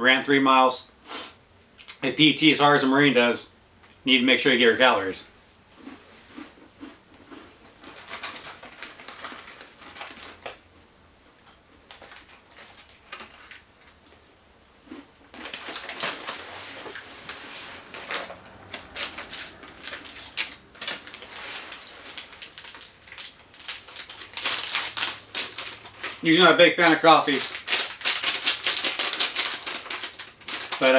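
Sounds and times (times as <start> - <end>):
plastic packets crinkling: 6.8 - 10.6, 11.8 - 14.0, 14.9 - 30.9.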